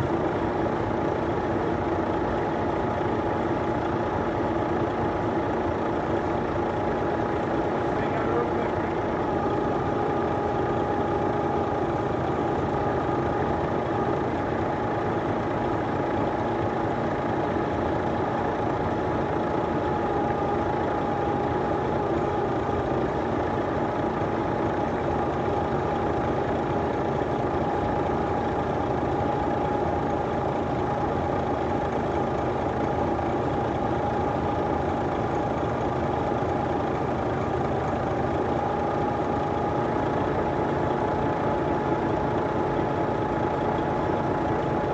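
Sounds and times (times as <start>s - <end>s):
constant whine: 0.0s - 44.9s
heavy vehicle engine running: 0.0s - 44.9s.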